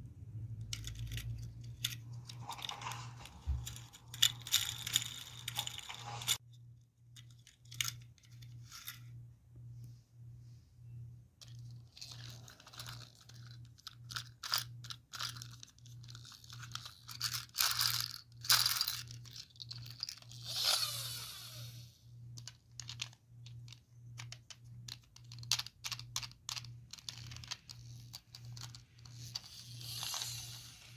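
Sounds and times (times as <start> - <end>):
plastic toys clicking and knocking: 0.6 - 6.4, 7.1 - 9.0, 11.4 - 20.6, 22.3 - 30.8
toy friction motor whirring: 1.1 - 6.4, 11.4 - 23.8, 25.2 - 30.9.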